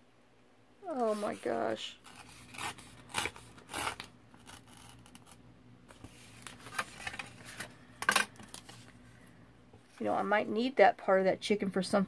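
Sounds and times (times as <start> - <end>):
paper tearing: 1.0 - 5.4
paper rustling: 2.1 - 9.0.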